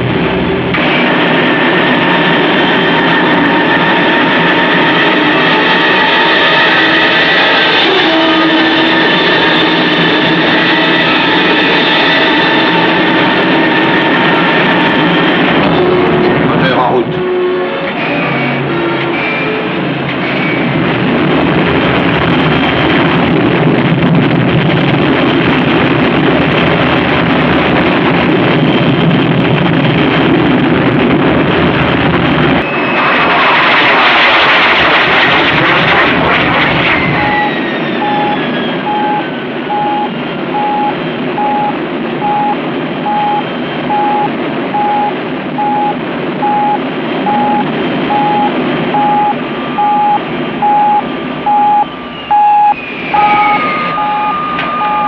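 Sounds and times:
rocket engines rumbling: 0:00.0 - 0:55.0
steady beeping: 0:37.2 - 0:55.0.

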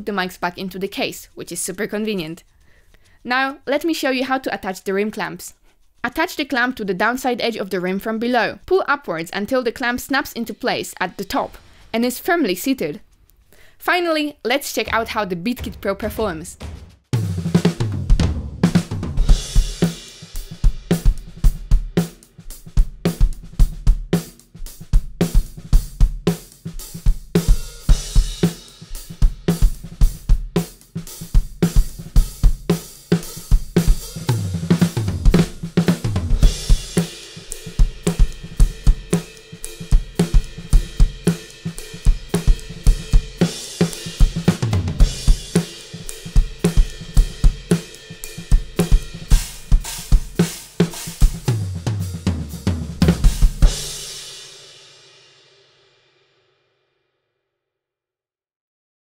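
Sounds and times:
drum kit groove: 0:09.8 - 0:13.2, 0:14.6 - 0:55.6
tom drum fills: 0:14.9 - 0:55.0.

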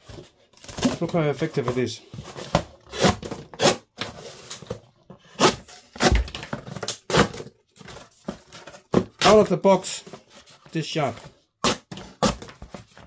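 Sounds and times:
cardboard rustling: 0:00.0 - 0:13.0
knife slicing cardboard: 0:05.2 - 0:06.5, 0:11.6 - 0:12.6.

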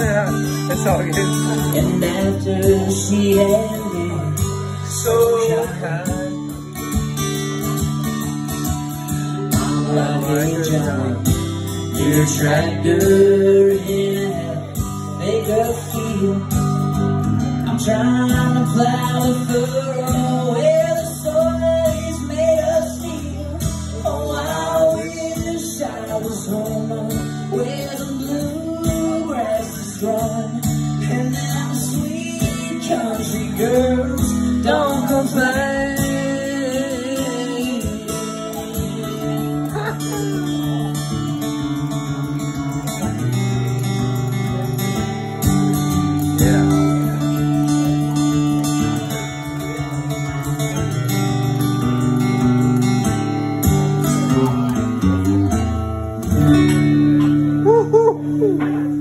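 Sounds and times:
man singing: 0:00.0 - 0:07.8, 0:09.0 - 0:43.3, 0:46.0 - 0:51.1
acoustic guitar strumming: 0:00.0 - 0:59.0.

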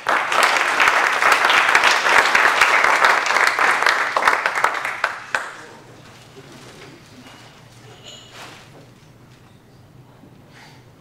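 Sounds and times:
audience clapping: 0:00.0 - 0:06.0.

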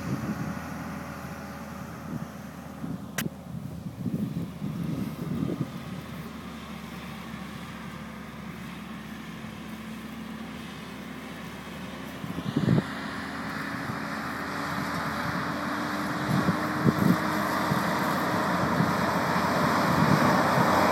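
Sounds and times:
wind buffet on microphone: 0:00.0 - 0:00.8, 0:02.0 - 0:06.2, 0:12.2 - 0:13.0, 0:15.2 - 0:20.9
truck engine running: 0:00.0 - 0:20.9.

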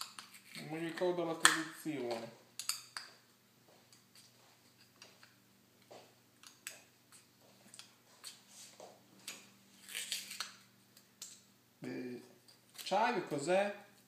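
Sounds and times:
knife crinkling plastic seal: 0:09.3 - 0:10.6.

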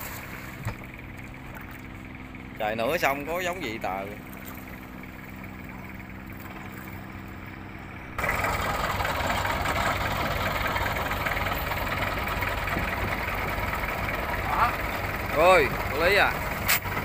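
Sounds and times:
boat engine running: 0:00.0 - 0:17.0.

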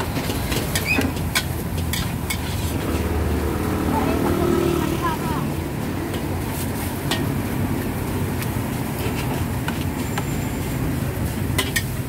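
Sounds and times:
metal utensils clinking on woks: 0:00.0 - 0:03.2, 0:06.1 - 0:10.4, 0:11.2 - 0:12.0.

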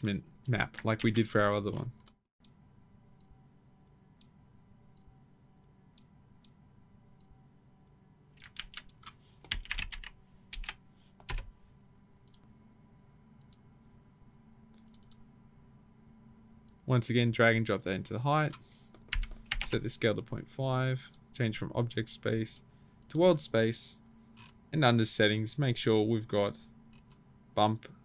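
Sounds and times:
faint steady hum: 0:00.0 - 0:28.0
keyboard keystrokes: 0:08.4 - 0:11.5
mouse clicks: 0:14.8 - 0:15.2.

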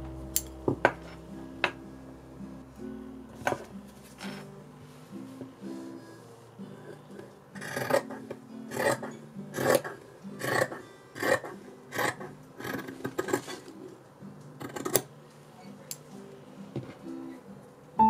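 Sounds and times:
faint music: 0:00.0 - 0:18.0
scissors snipping fabric: 0:07.6 - 0:13.6, 0:14.6 - 0:15.1.

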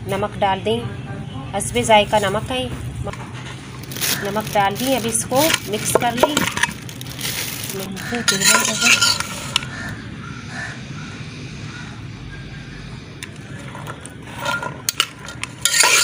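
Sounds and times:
spoon clinking and scraping metal bowl: 0:04.1 - 0:06.9, 0:08.0 - 0:09.7, 0:13.7 - 0:16.0.

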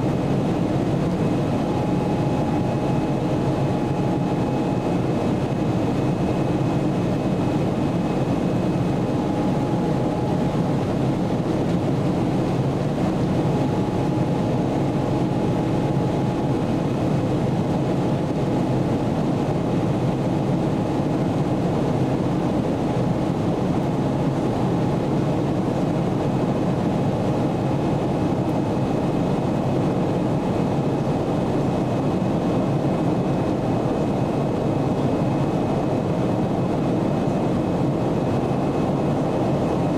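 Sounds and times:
faint steady whines: 0:00.0 - 0:39.9
jet engine cabin drone: 0:00.0 - 0:39.9.

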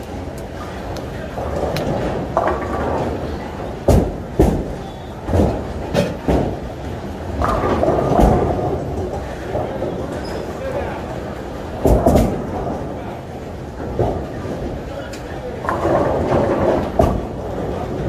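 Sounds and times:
bowling balls rolling: 0:00.2 - 0:18.0
balls crashing into pins: 0:07.4 - 0:09.9.

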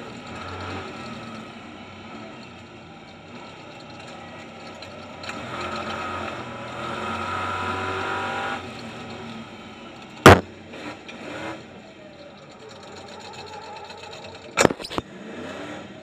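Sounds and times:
racing truck engines: 0:00.0 - 0:16.0
loud bang: 0:10.3 - 0:10.5.

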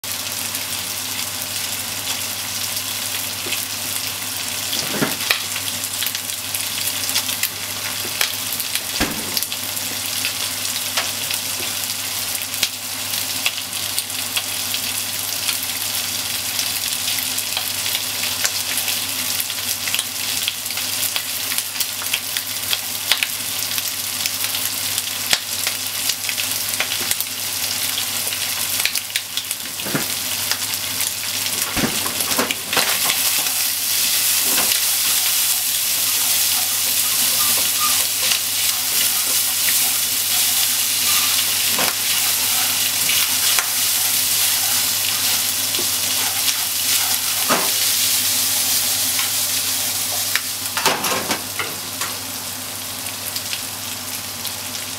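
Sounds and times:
bacon and onion sizzling in pan: 0:00.0 - 0:54.9
hot fat popping and crackling: 0:04.7 - 0:11.8, 0:25.3 - 0:50.9
wooden utensil stirring: 0:34.6 - 0:47.5.

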